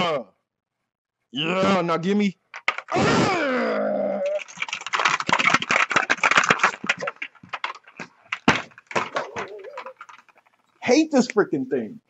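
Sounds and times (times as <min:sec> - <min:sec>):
ball rattling in plastic maze: 0:02.5 - 0:03.0, 0:04.2 - 0:10.7.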